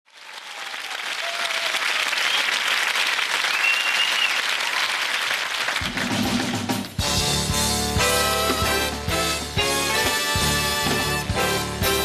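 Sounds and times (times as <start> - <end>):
audience applauding: 0.1 - 7.0
crowd whistles: 0.6 - 2.7, 3.4 - 4.6.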